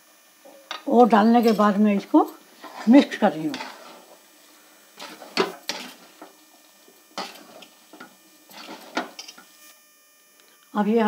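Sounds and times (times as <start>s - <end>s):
spoon scraping a cooking pan: 2.5s - 9.6s.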